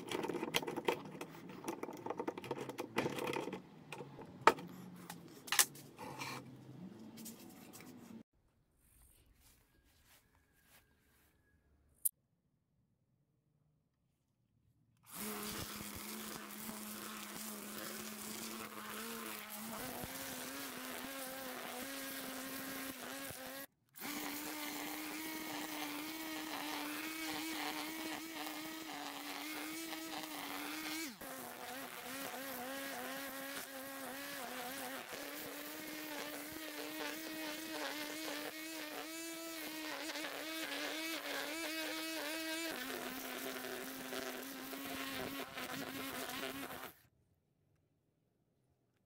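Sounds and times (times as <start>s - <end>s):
grass trimmer buzzing whine: 15.1s - 47.0s.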